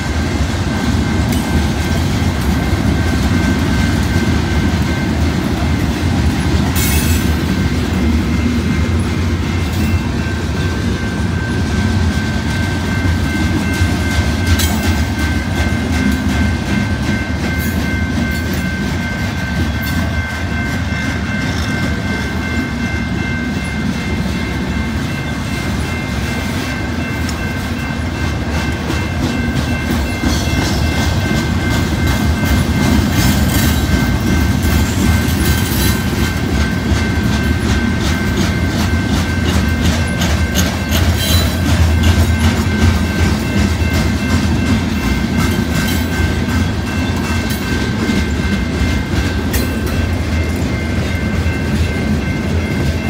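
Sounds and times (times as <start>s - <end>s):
freight train rumbling past: 0.0s - 53.0s
train wheel clicks: 27.0s - 53.0s.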